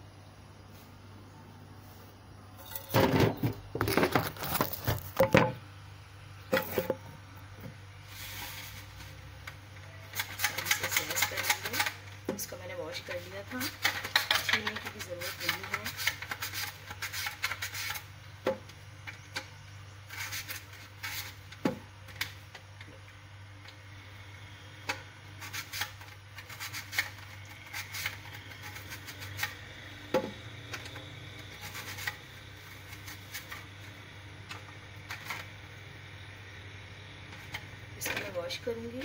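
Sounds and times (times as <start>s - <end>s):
steady low hum: 0.0s - 39.0s
potato scraping over slicer blade: 10.1s - 12.0s, 20.1s - 21.4s, 25.4s - 30.0s, 30.7s - 33.8s.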